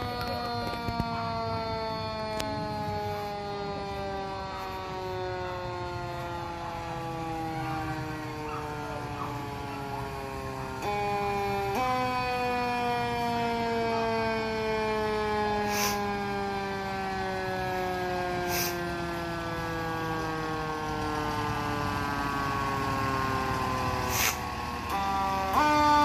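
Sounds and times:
mechanical siren whine: 0:00.0 - 0:26.0
short hisses: 0:15.7 - 0:16.0, 0:24.1 - 0:24.4.

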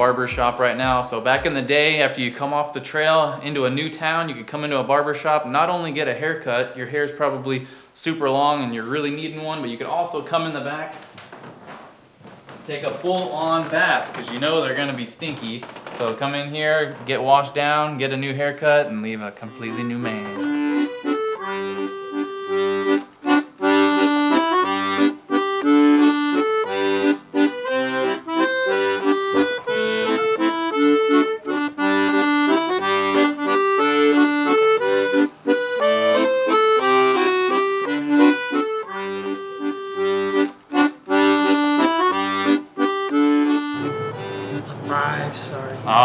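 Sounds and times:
lively instrumental music: 0:00.0 - 0:02.4, 0:12.8 - 0:17.6, 0:18.2 - 0:46.0.

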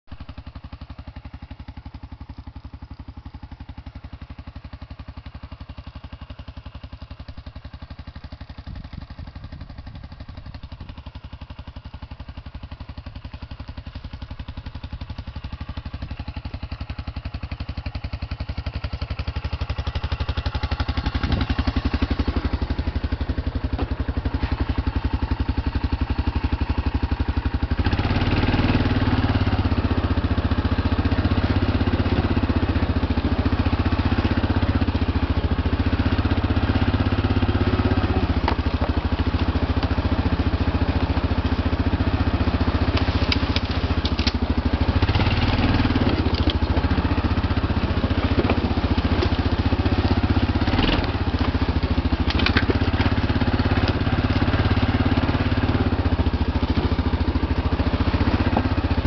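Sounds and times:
quad bike engine idling: 0:00.1 - 0:59.0.

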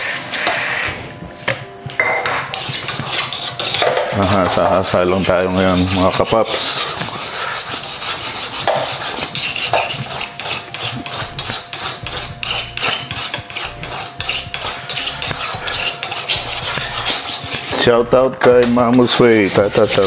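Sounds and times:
knife sharpening strokes: 0:02.5 - 0:17.8.

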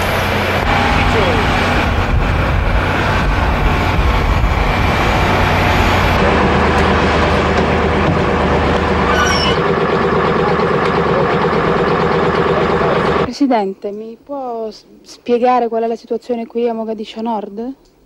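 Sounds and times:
tracked vehicle engine running: 0:00.0 - 0:13.3
high squeal: 0:09.0 - 0:09.7.

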